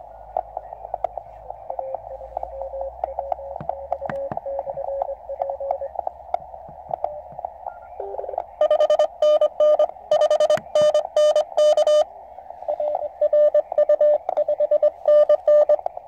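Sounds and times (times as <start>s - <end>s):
radio band hiss: 0.0s - 16.0s
tuning dial clicks: 0.3s - 12.0s, 12.8s - 16.0s
morse code tones: 1.5s - 6.0s, 7.0s - 16.0s
loud harsh morse code: 7.8s - 12.1s, 12.7s - 15.8s.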